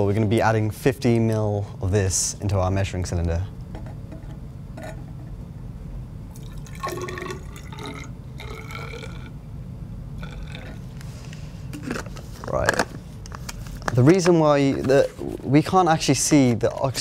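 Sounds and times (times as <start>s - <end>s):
liquid pouring into glass cylinder: 6.3s - 9.3s.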